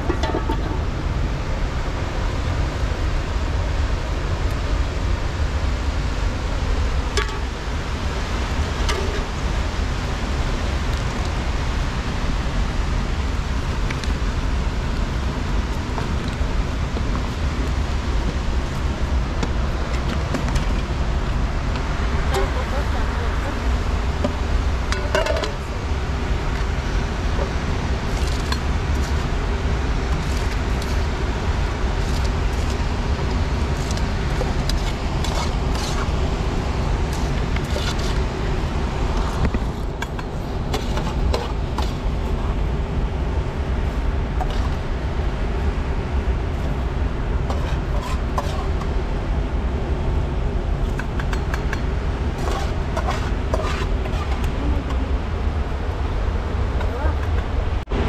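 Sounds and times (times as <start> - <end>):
fast river rushing: 0.0 - 56.8
metal spoon scraping metal pan: 47.5 - 48.8, 52.4 - 54.5.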